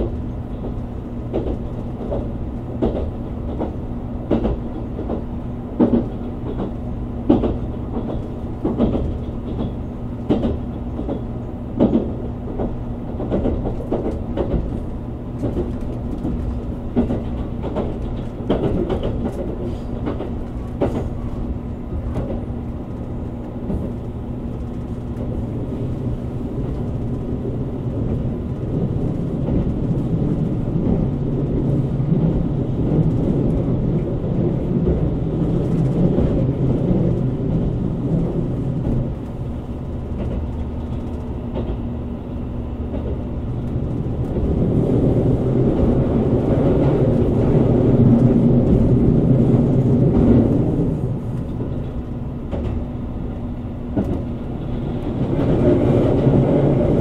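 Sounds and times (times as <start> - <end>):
rail joint clacks: 0.0 - 57.0
train rumble and hum: 0.0 - 57.0.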